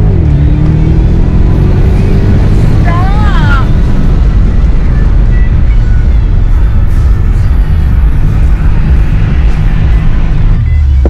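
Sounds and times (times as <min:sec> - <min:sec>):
road rumble: 0:00.0 - 0:11.0.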